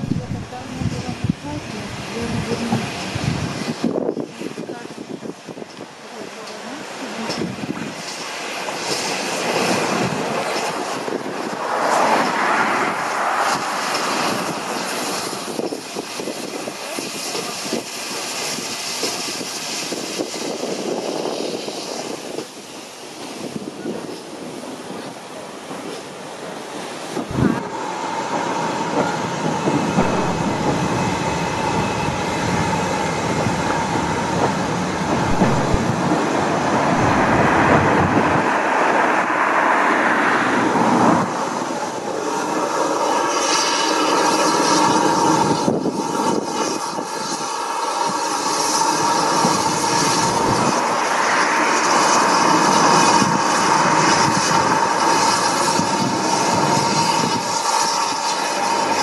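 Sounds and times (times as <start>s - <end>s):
steam hiss: 0.0s - 59.0s
train rail rumble and wheel clatter: 0.0s - 59.0s
thin wheel squeal: 42.4s - 59.0s.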